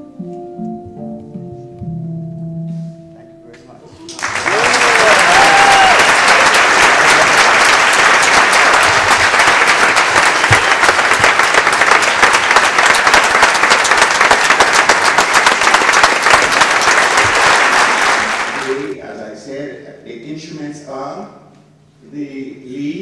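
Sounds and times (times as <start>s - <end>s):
audience applauding: 4.1s - 19.0s.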